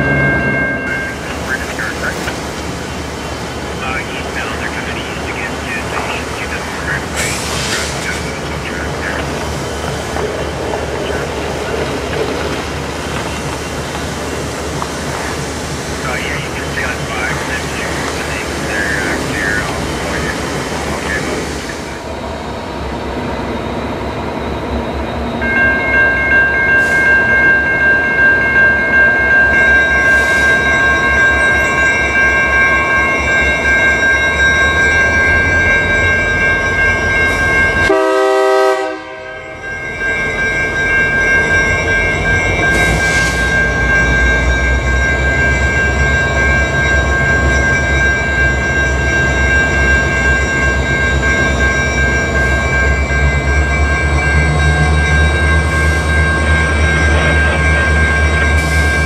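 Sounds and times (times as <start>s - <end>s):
level crossing bell ringing: 0.0s - 2.1s, 25.4s - 38.4s, 39.1s - 59.0s
diesel locomotive rumble: 0.0s - 59.0s.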